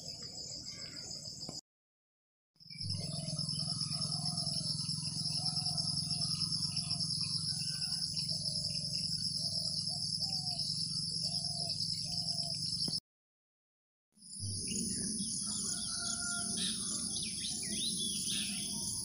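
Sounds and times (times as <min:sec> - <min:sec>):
crickets trilling: 0:02.6 - 0:13.0, 0:14.2 - 0:19.0.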